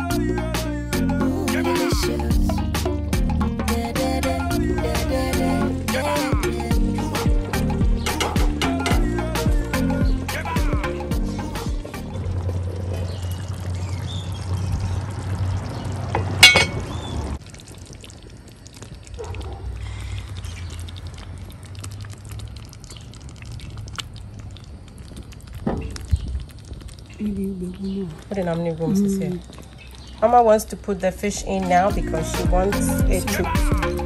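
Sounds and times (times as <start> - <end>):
stew bubbling in a pot: 11.8 - 31.8
sharp clink: 16.4 - 16.9.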